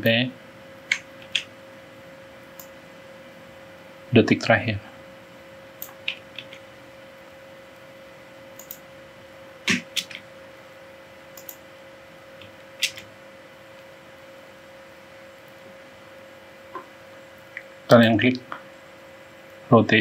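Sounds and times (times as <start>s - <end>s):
faint electrical hum: 0.0s - 20.0s
mouse and keyboard clicks: 11.4s - 11.6s, 12.4s - 13.1s.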